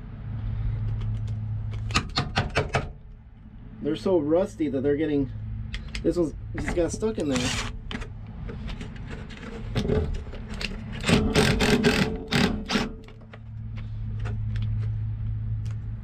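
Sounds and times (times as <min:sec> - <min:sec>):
ratchet clicking: 0:10.6 - 0:13.2.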